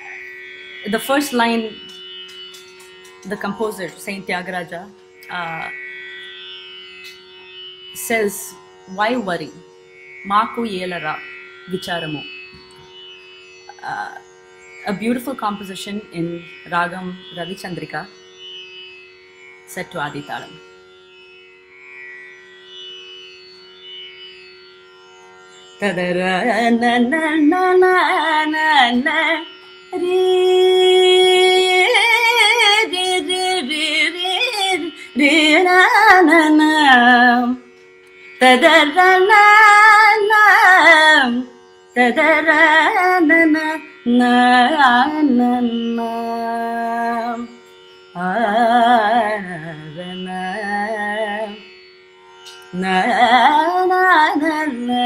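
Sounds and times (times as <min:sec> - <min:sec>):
steady drone: 0:00.0 - 0:18.1, 0:25.5 - 0:41.4
woman singing gliding phrases: 0:00.9 - 0:01.9, 0:03.3 - 0:05.8, 0:08.0 - 0:09.6, 0:10.3 - 0:12.3, 0:13.7 - 0:14.3, 0:14.9 - 0:18.1, 0:25.8 - 0:37.7, 0:38.4 - 0:47.6, 0:48.2 - 0:51.7, 0:52.7 - 0:55.0.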